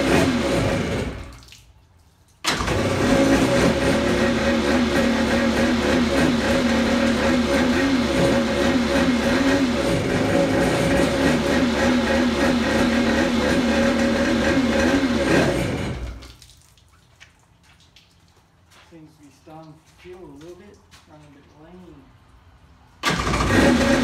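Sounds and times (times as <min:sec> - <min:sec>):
two-stroke engine running: 0:00.0 - 0:01.3, 0:02.5 - 0:16.2, 0:23.0 - 0:24.0
water trickling: 0:16.2 - 0:21.3.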